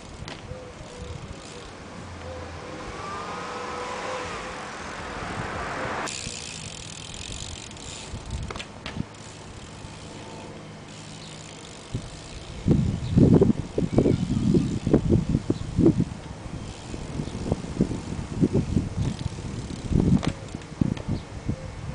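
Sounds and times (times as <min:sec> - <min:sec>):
car passing close by: 0:02.0 - 0:06.1.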